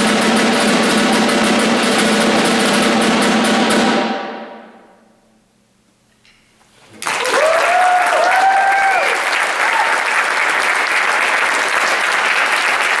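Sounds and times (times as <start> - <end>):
audience applause: 7.0 - 13.0
cheering and whoops: 7.2 - 10.4.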